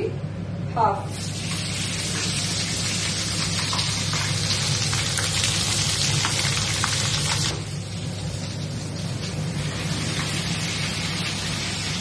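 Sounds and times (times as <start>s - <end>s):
oil crackling and popping: 1.5s - 7.6s.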